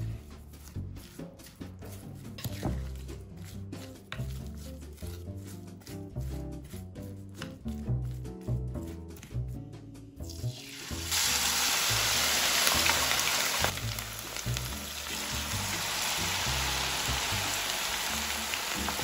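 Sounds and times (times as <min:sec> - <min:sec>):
deep-frying oil bubbling: 0:10.3 - 0:19.0
vegetables sizzling in hot oil: 0:10.5 - 0:19.0.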